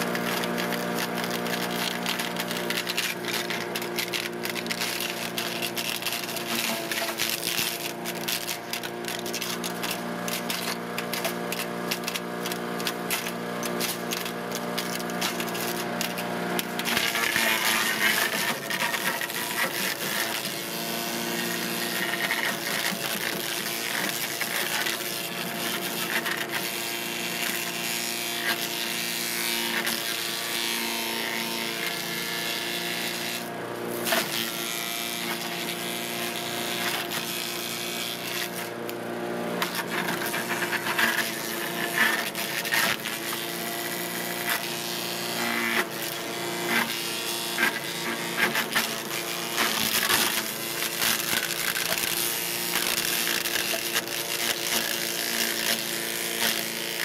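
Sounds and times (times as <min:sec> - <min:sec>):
chipper shredder engine running: 0:00.0 - 0:57.0.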